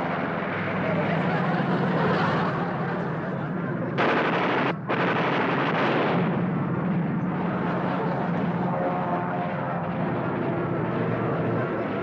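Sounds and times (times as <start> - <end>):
propeller plane engine droning: 0.0 - 12.0
loud rushing blast: 4.0 - 6.7.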